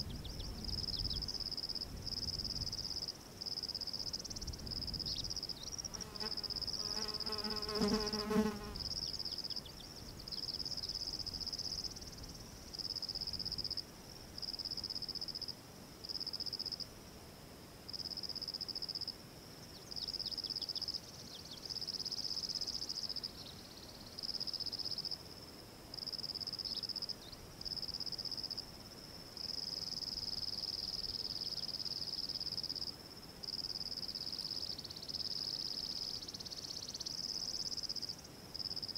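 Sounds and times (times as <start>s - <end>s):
insects trilling: 0.0s - 13.8s, 29.4s - 38.9s.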